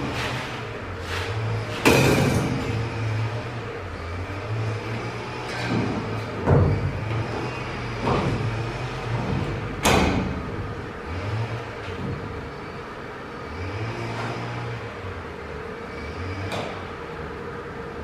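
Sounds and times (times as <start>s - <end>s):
metal knocks and scrapes: 0.0s - 3.6s, 4.5s - 12.4s
steady low hum: 0.0s - 18.0s.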